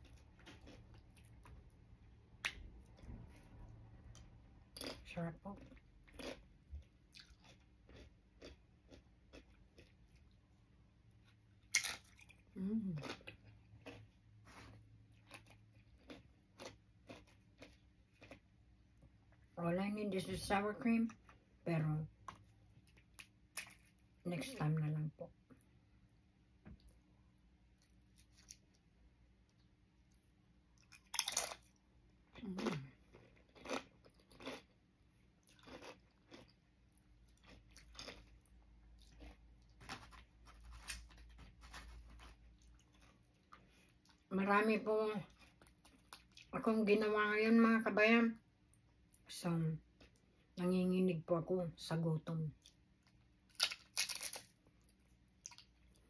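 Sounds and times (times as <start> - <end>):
person chewing crunchy food: 0.0 - 1.8, 5.6 - 19.5, 27.7 - 28.9, 29.5 - 44.3, 45.3 - 46.5, 52.6 - 56.0.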